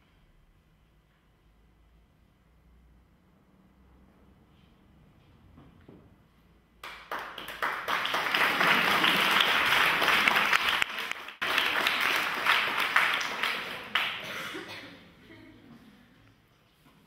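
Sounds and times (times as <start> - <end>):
audience applauding: 6.8 - 14.3.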